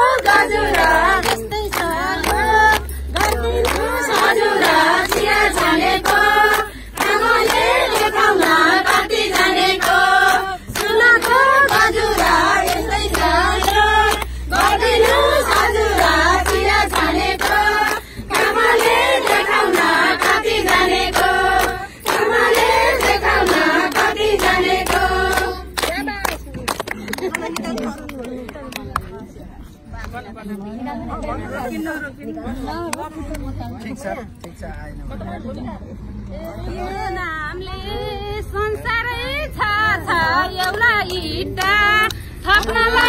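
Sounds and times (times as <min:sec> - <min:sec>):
women singing together: 0:00.0 - 0:26.6, 0:36.4 - 0:43.0
hands clapping in a steady beat: 0:00.0 - 0:29.2, 0:32.9 - 0:34.8, 0:40.1 - 0:43.0.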